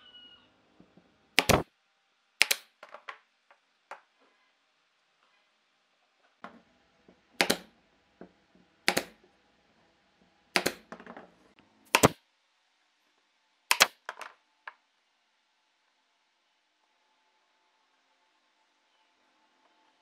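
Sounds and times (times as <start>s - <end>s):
pneumatic nailer firing: 1.4s - 1.6s, 11.9s - 12.2s.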